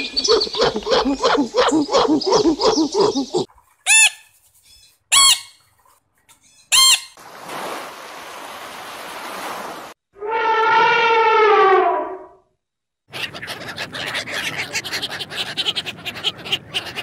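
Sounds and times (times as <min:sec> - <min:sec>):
rapid repeated bird calls: 0:00.0 - 0:05.8, 0:13.1 - 0:17.0
parrot squawks: 0:03.9 - 0:04.2, 0:05.1 - 0:05.6, 0:06.7 - 0:07.2
surf washing in: 0:07.2 - 0:10.0.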